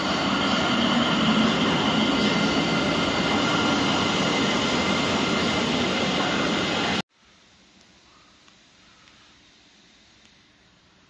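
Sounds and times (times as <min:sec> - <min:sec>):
train rumbling past: 0:00.0 - 0:07.0.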